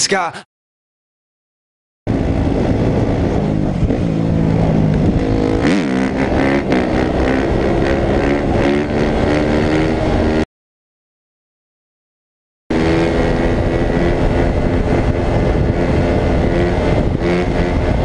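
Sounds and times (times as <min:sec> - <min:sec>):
dirt bike engine revving: 0:02.1 - 0:10.5, 0:12.7 - 0:18.0.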